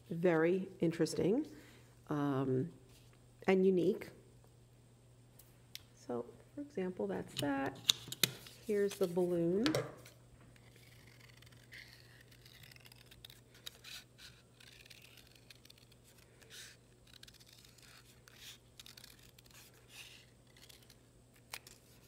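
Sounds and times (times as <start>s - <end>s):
scissors snipping paper: 10.6s - 22.0s.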